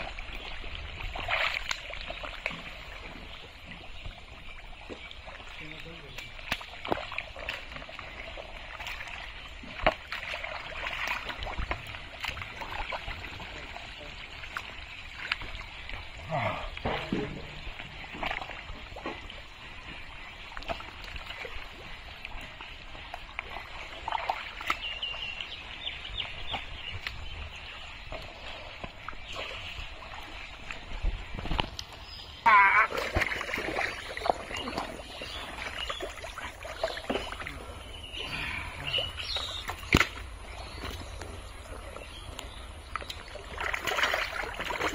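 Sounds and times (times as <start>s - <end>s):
mud squelching and splashing: 0.0s - 44.9s
fish splatting and slapping: 32.5s - 35.0s, 39.6s - 41.0s, 43.0s - 44.9s.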